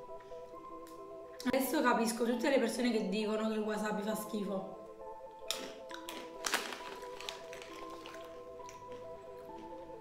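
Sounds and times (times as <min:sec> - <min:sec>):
background music with held notes: 0:00.0 - 0:10.0
plastic snack bag crinkling: 0:05.5 - 0:09.8.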